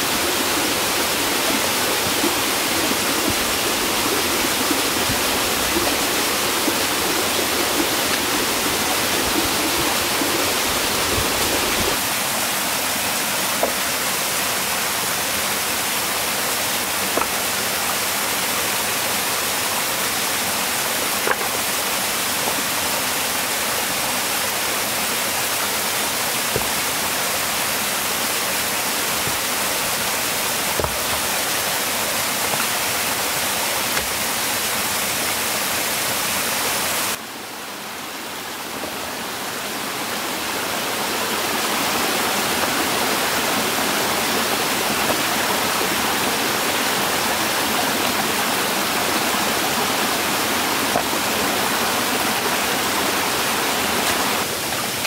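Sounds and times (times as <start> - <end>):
rushing water: 0.0 - 55.0.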